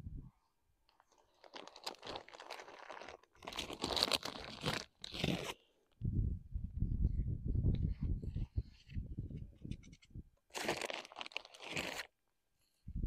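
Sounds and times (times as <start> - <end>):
plastic bag crinkling: 0.9 - 5.6, 10.5 - 12.1.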